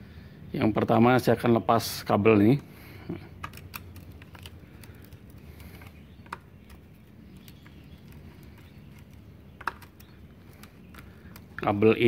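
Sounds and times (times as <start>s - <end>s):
sharp clicks: 3.4s - 11.8s.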